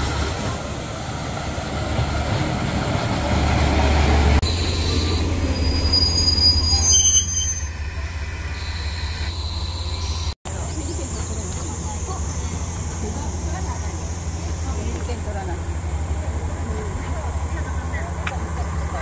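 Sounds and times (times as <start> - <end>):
train rumbling on rails: 0.0 - 19.0
wheels squealing against rails: 4.4 - 14.7.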